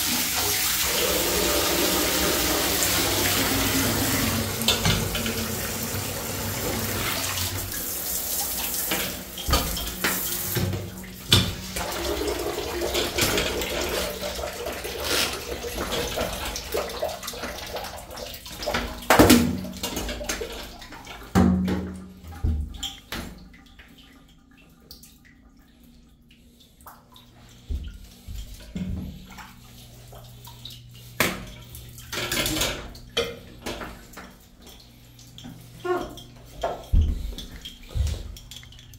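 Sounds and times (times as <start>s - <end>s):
shower spraying water into tub: 0.0s - 20.8s.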